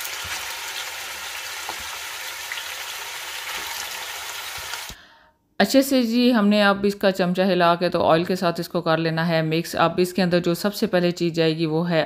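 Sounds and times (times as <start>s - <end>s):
chicken sizzling in hot oil: 0.0s - 5.0s.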